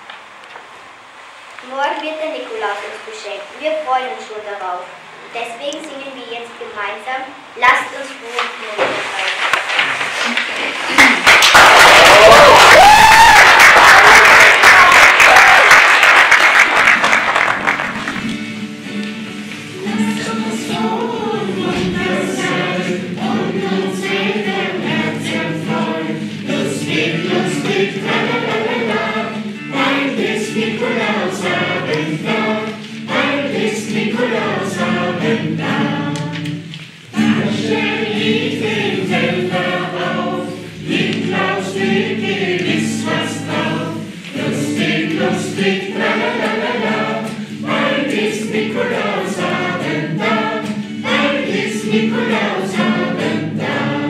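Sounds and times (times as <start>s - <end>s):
acoustic guitar: 7.0s - 54.0s
choir singing: 19.7s - 54.0s.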